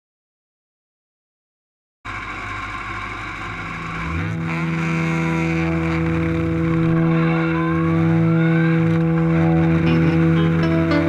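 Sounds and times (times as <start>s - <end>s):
racing engine revving: 2.1s - 11.0s
faint rising tone: 2.5s - 11.0s.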